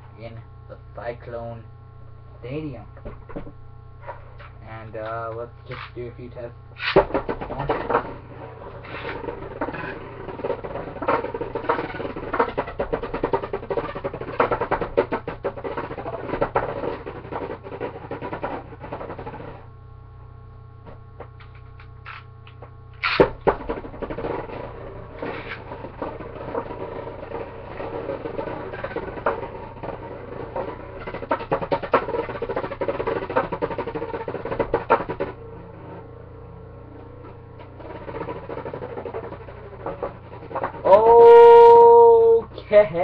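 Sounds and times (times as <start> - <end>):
spinning top rattling in dish: 23.0 - 35.4, 37.2 - 41.8.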